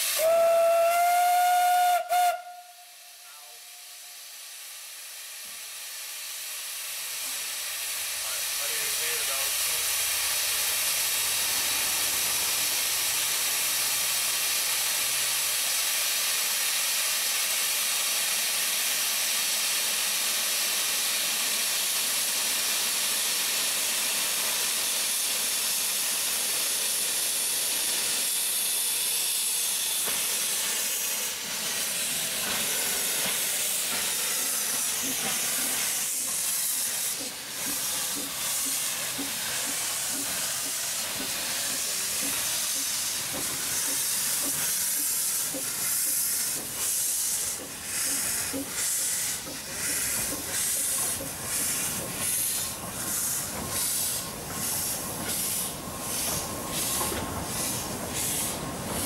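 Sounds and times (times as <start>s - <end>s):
steam hissing: 0.0s - 59.0s
steam locomotive chuffing: 0.0s - 59.0s.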